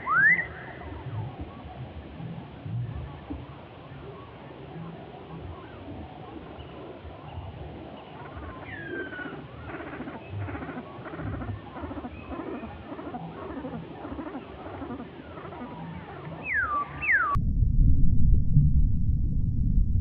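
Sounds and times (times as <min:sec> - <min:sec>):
wild birds calling: 0:05.6 - 0:17.4
chatter of animal calls: 0:08.1 - 0:17.1.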